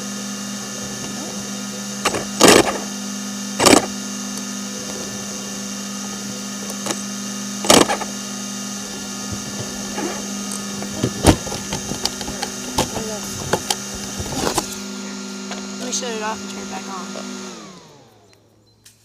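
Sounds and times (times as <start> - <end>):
steady mechanical hum: 0.0 - 19.0.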